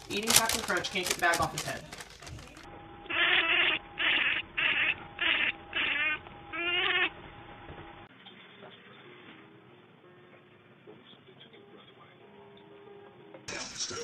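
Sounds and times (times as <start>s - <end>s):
cat calling: 3.1s - 7.2s.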